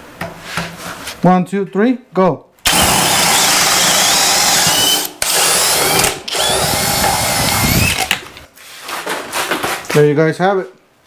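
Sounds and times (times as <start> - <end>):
drill motors under heavy load: 2.6 - 8.3.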